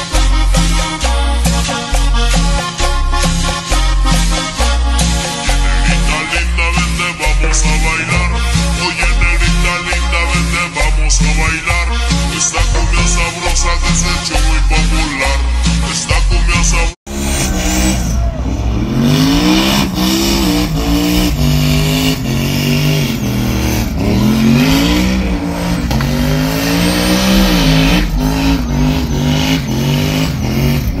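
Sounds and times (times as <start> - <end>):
truck engine revving: 0.0 - 31.0
tires squealing: 17.1 - 31.0.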